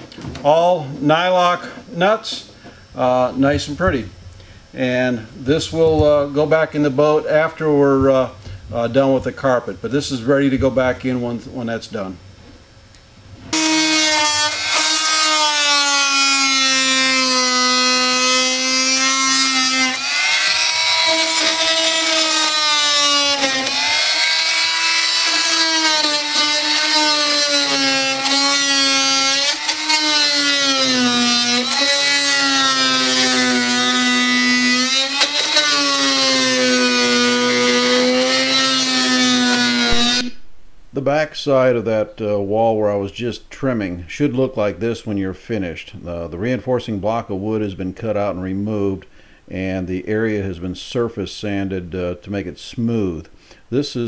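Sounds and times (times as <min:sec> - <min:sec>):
oscillating multi-tool cutting wood: 0:13.5 - 0:40.4.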